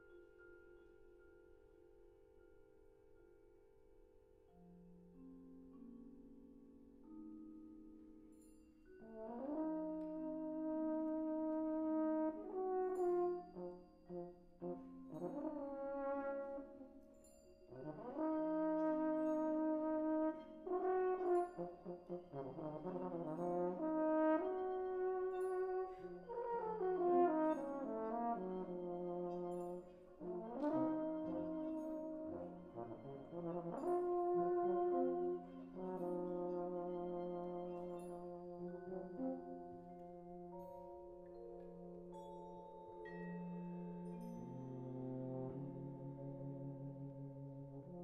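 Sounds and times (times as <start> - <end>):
brass band playing chords: 9.0 - 16.9, 17.8 - 40.3, 43.8 - 48.0.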